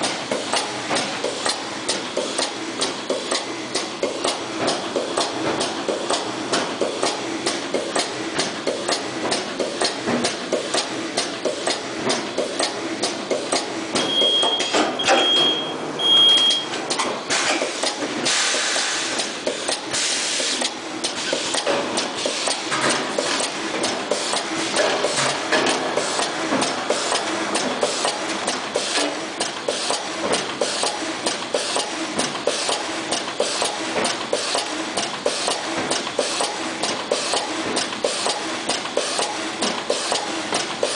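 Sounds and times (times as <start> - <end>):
machine clattering clicks: 0.0 - 13.7, 16.8 - 40.9
short high beeps: 14.0 - 16.7
hiss: 17.3 - 19.2, 19.9 - 20.6.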